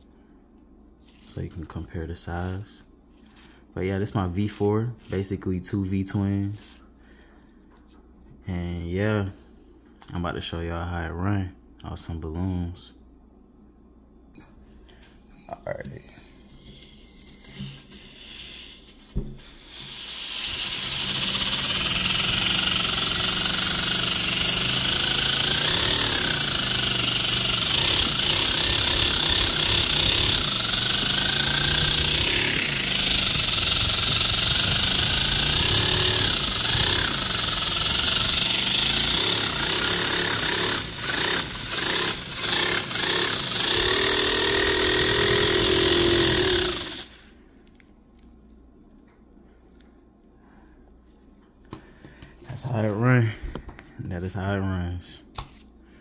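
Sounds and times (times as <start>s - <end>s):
small air engine clattering: 21.0s - 47.1s.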